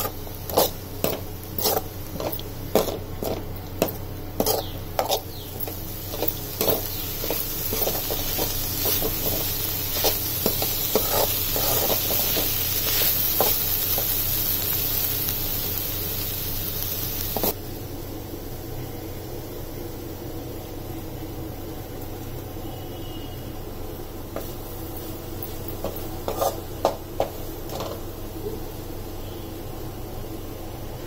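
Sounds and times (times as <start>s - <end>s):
ladle scraping and knocking pan: 0.0s - 14.1s, 25.4s - 28.0s
food sizzling in oil: 0.0s - 29.4s.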